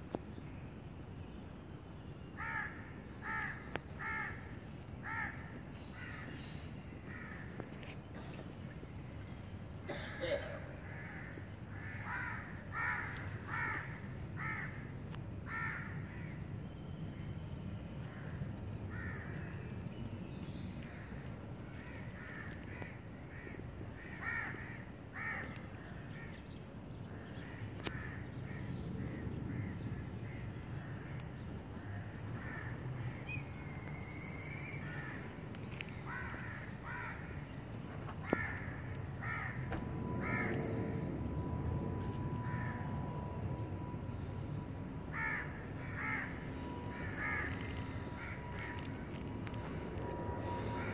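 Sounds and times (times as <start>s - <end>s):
crows cawing: 2.4s - 6.4s, 7.0s - 7.6s, 9.9s - 14.9s, 15.5s - 16.4s, 18.0s - 19.6s, 20.9s - 26.4s, 27.2s - 31.2s, 31.9s - 32.8s, 34.6s - 35.3s, 36.0s - 37.4s, 38.2s - 40.6s, 42.4s - 42.8s, 45.1s - 49.6s.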